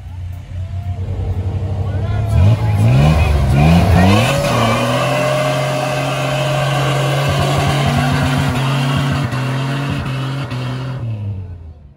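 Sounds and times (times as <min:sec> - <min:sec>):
truck engine at high revs: 0:00.0 - 0:11.9.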